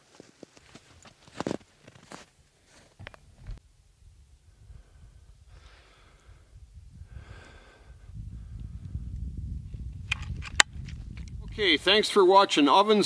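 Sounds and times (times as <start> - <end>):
low rumbling on microphone: 3.0 - 11.9
man breathing out through nose: 4.5 - 9.1
sharp clicks: 10.0 - 11.4.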